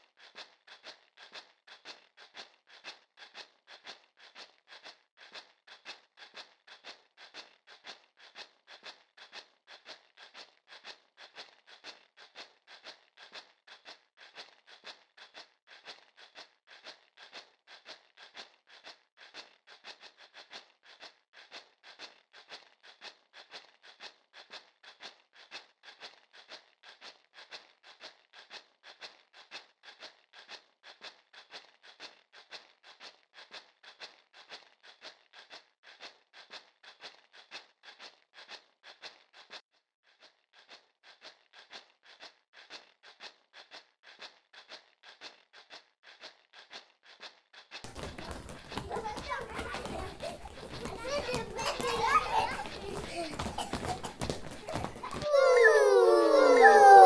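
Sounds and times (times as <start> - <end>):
short scratchy strokes: 47.9 - 57.0.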